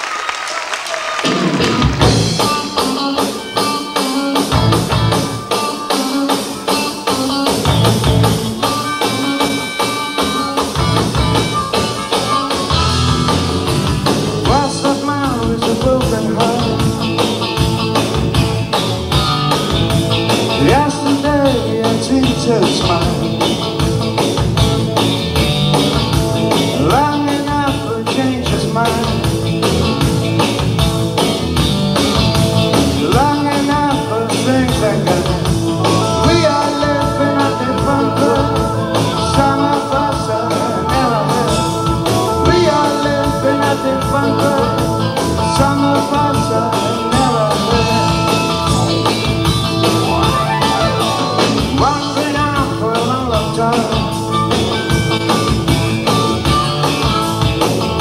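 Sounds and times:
electric guitar: 1.0 - 58.0
drum kit: 1.1 - 58.0
electric bass: 1.6 - 3.4, 4.4 - 5.5, 7.1 - 58.0
man singing: 14.4 - 17.2, 20.5 - 23.7, 26.7 - 29.3, 32.9 - 49.2, 50.9 - 54.2.

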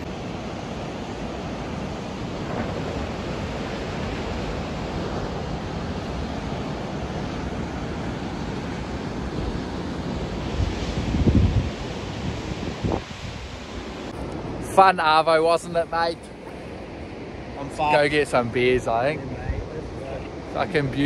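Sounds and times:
wind on microphone: 0.0 - 14.7
ocean surf breaking: 0.0 - 21.0.

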